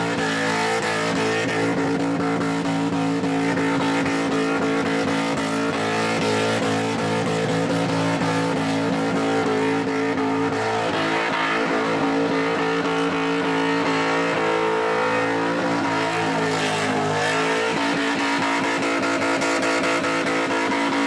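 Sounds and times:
car engine revving high: 0.0 - 21.0.

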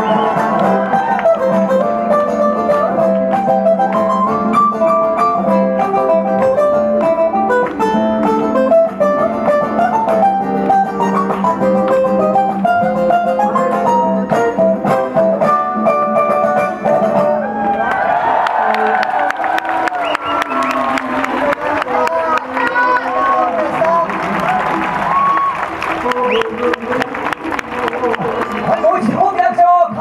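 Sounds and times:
ukulele picked melody: 0.0 - 17.5.

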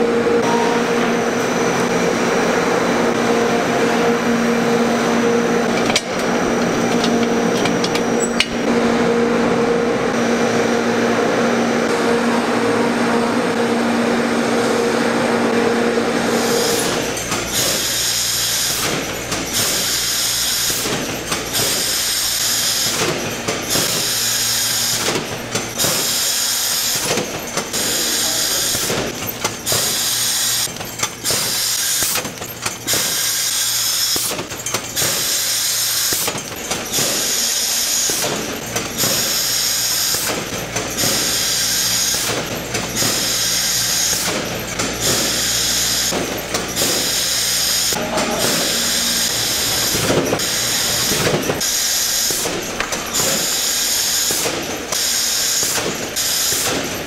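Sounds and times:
production machinery whirring: 0.0 - 57.0.

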